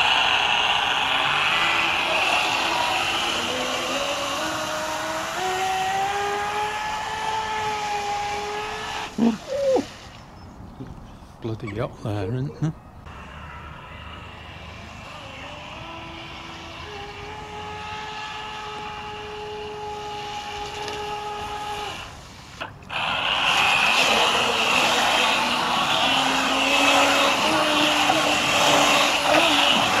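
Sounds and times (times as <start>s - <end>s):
toy boat motor whining: 0.0s - 10.1s, 13.1s - 30.0s
rush of water spray: 0.0s - 10.3s, 18.9s - 30.0s.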